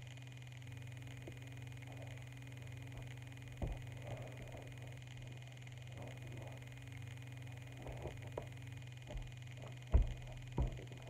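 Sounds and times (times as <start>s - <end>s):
steady low hum: 0.0s - 11.0s
thumps of landing on carpet: 9.9s - 10.9s.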